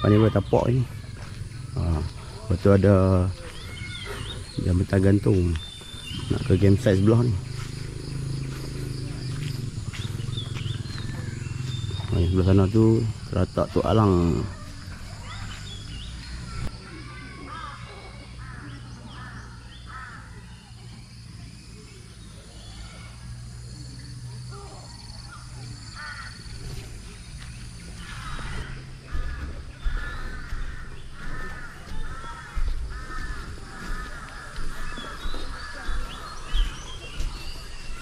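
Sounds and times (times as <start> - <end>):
bird calling repeatedly: 0.0 - 20.7, 24.0 - 38.0
faint birds chirping: 0.0 - 38.0.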